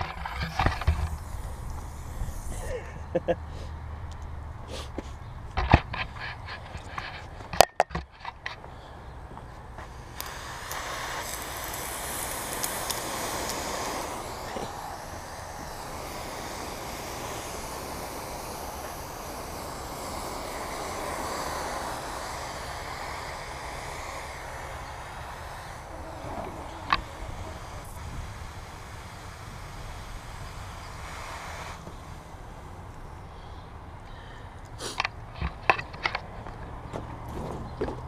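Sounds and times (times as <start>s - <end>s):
hose nozzle spraying water: 0.0s - 2.9s, 5.6s - 8.6s, 9.7s - 36.4s.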